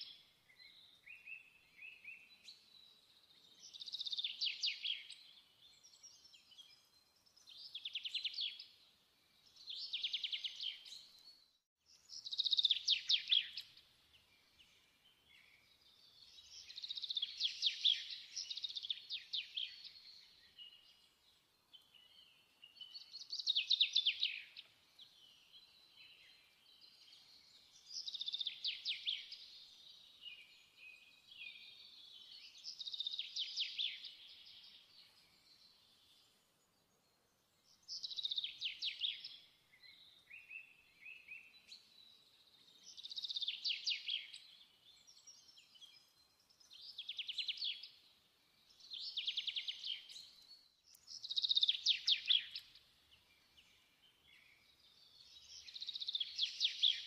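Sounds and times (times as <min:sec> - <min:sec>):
songbird chirps and trills: 0:00.0 - 0:57.0.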